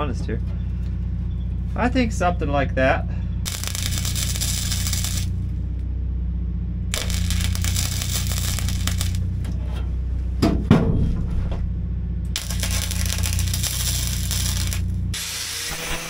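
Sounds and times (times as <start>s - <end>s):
steady low hum: 0.0s - 15.3s
welding arc crackling: 3.4s - 5.4s, 6.9s - 9.4s, 12.3s - 16.0s
loud metal knock: 10.4s - 11.6s.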